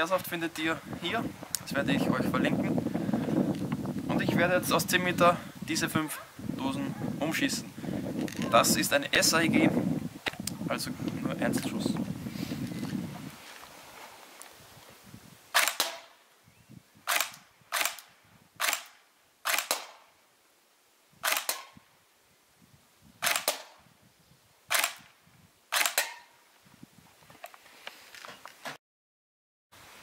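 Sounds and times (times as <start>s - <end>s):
airsoft rifle shots: 15.5s - 16.2s, 17.1s - 20.0s, 21.2s - 21.8s, 23.2s - 23.8s, 24.7s - 26.3s.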